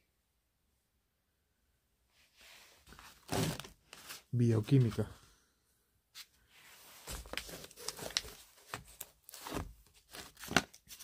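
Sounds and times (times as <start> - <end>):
paper rustling: 6.2 - 11.0.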